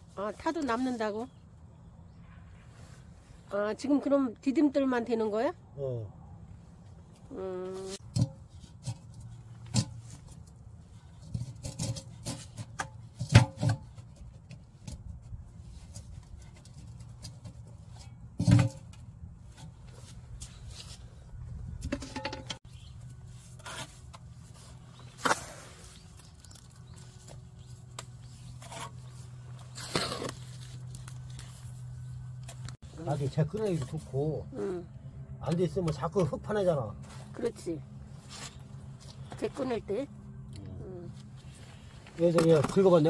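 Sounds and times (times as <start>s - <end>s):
pot knocking and scraping: 21.8s - 22.6s.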